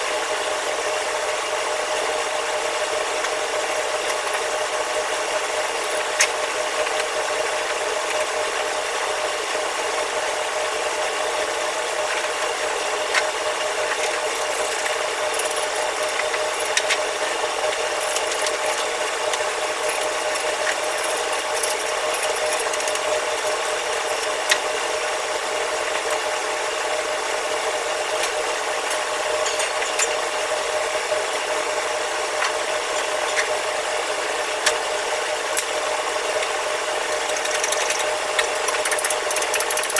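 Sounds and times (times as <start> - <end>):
fan hum: 0.0 - 39.9.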